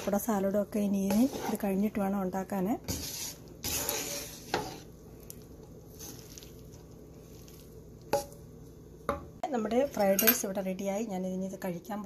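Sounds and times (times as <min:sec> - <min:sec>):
spatula scraping pan: 0:00.0 - 0:02.1, 0:02.7 - 0:05.0, 0:05.9 - 0:08.4.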